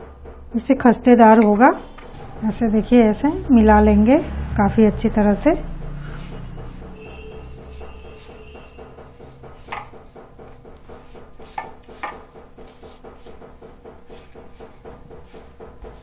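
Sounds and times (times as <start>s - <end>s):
hand rubbing flour in metal bowl: 0.6s - 16.0s.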